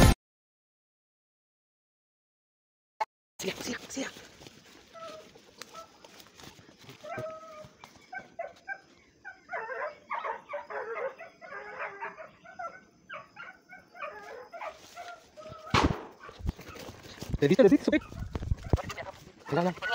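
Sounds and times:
dogs barking and yelping: 0:04.4 - 0:19.9.

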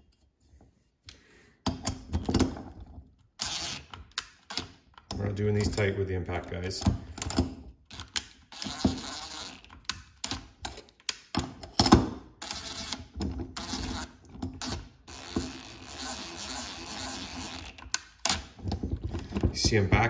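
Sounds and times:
impact driver spinning: 0:03.4 - 0:05.8, 0:06.8 - 0:10.7, 0:11.4 - 0:20.0
bit clicking on bolt heads: 0:03.4 - 0:15.6.

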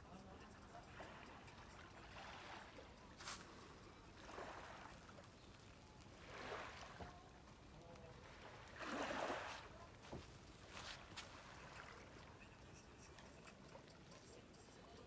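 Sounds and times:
small waves lapping on sand: 0:00.7 - 0:12.6.

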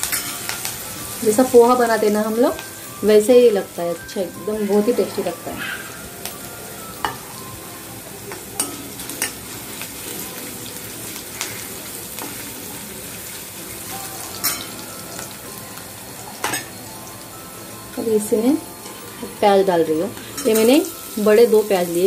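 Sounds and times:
steel ladle clinking on pan: 0:00.0 - 0:00.6, 0:08.3 - 0:09.4, 0:14.2 - 0:15.3, 0:16.4 - 0:16.8
garlic sizzling in hot oil: 0:00.0 - 0:22.0.

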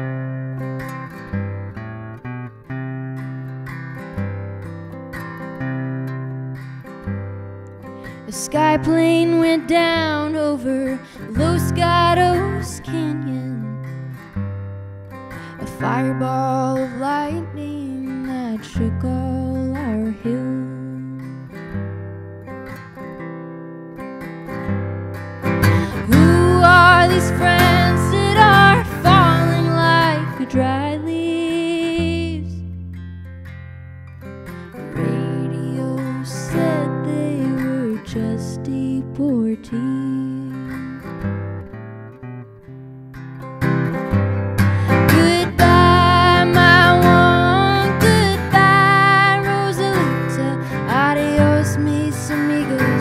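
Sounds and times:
strummed acoustic guitar: 0:00.0 - 0:53.0
woman singing: 0:08.0 - 0:14.3, 0:15.3 - 0:21.8, 0:25.6 - 0:32.7, 0:34.8 - 0:41.2, 0:44.6 - 0:53.0
woman singing long notes: 0:25.8 - 0:32.6, 0:44.9 - 0:53.0.

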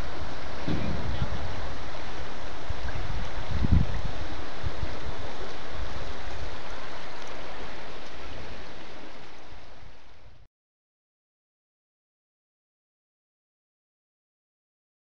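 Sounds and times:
wind buffeting microphone: 0:00.0 - 0:06.2
rushing river water: 0:00.0 - 0:10.5.

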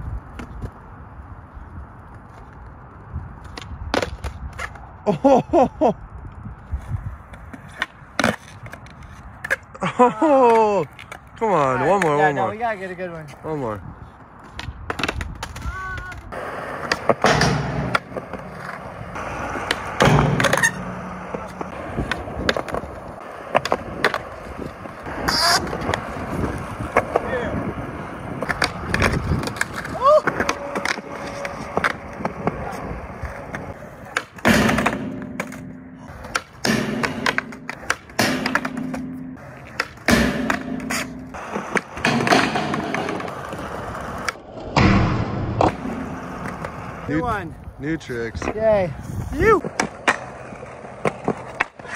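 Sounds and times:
skateboard wheels rolling on concrete: 0:00.0 - 0:51.9
light skateboard clicks: 0:00.1 - 0:05.0, 0:10.4 - 0:12.4, 0:14.1 - 0:27.3
skateboard clacking on ledge: 0:33.5 - 0:44.4.

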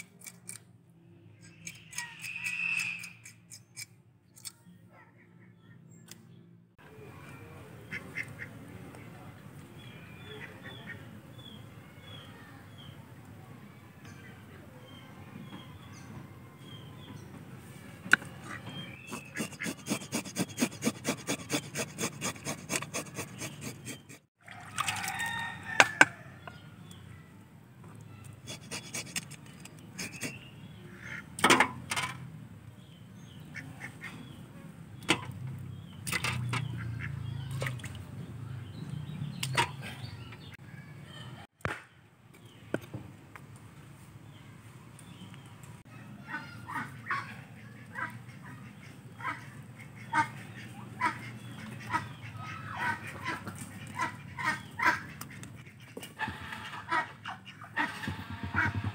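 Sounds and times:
metal scaler scraping fish: 0:19.0 - 0:24.2, 0:28.4 - 0:30.4
tool knocking on wooden block: 0:58.0 - 0:58.9.

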